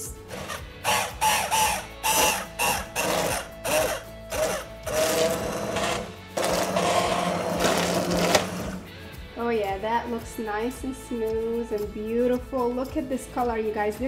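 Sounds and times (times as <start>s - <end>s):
immersion blender whining: 0.0s - 8.9s.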